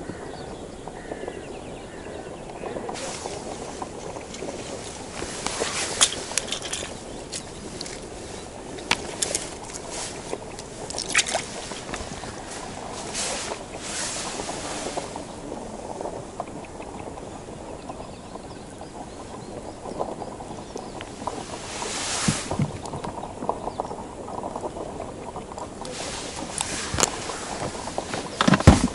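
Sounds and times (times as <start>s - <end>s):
rustling: 2.7s - 17.2s, 20.0s - 23.5s, 25.6s - 28.9s.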